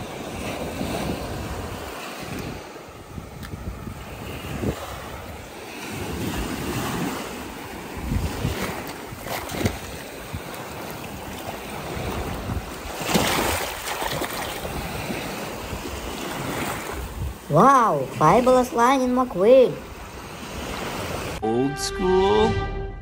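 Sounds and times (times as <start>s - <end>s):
wind buffeting microphone: 0.0s - 17.6s
small waves washing on sand: 0.0s - 21.4s.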